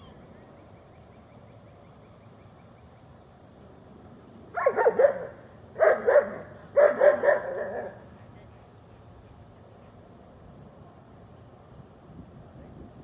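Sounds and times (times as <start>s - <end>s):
dog barking: 4.6s - 8.0s.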